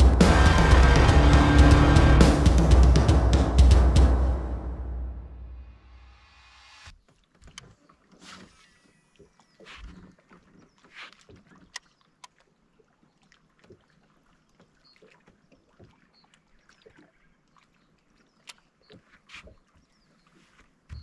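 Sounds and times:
water sloshing: 6.9 - 21.0
knocks and clicks on boat: 7.0 - 12.5, 18.4 - 20.0.

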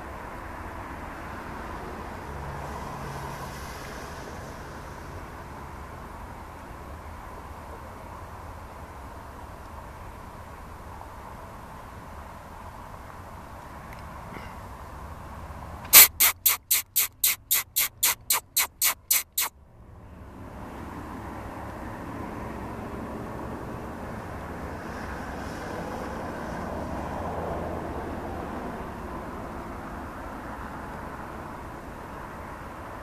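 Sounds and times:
road traffic: 0.0 - 33.0
rapid sharp noise bursts: 15.9 - 19.5.

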